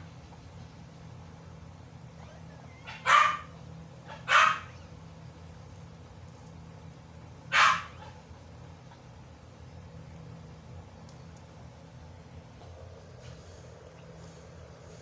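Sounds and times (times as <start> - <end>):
dog yelping: 2.1 - 5.0, 7.5 - 8.2.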